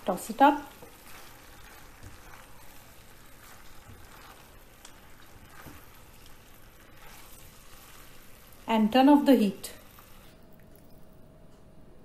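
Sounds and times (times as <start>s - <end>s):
pasta sizzling in a frying pan: 0.0s - 10.5s
spatula scraping: 0.7s - 8.7s.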